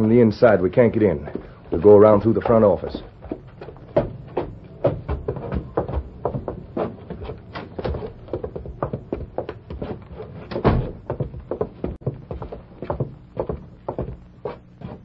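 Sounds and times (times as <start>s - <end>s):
footsteps on wooden boards: 0.0s - 15.0s
door opening: 9.9s - 11.1s
loud thump: 10.5s - 11.0s.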